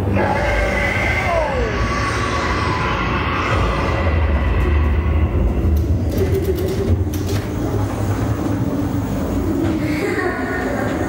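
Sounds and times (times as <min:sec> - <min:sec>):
ride car rumbling on track: 0:05.7 - 0:11.0.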